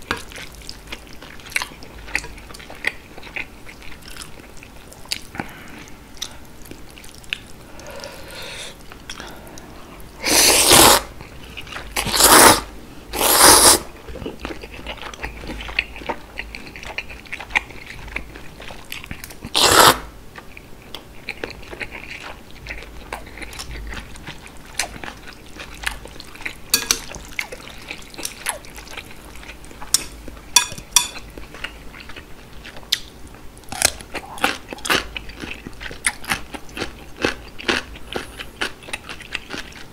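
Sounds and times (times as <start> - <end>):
wet chewing and smacking: 0.0 - 7.6, 20.3 - 39.9
loud slurping of noodles: 10.2 - 11.1, 12.1 - 13.9, 19.6 - 20.1.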